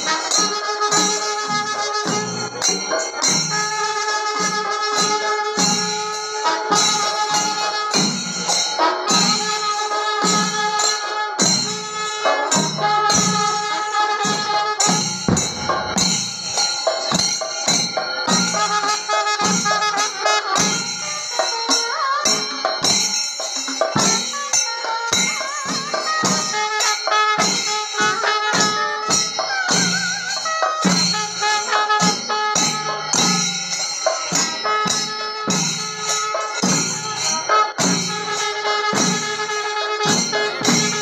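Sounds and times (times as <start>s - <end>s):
cymbals jingling: 0.0s - 41.0s
drums beating: 11.4s - 26.8s, 27.7s - 41.0s.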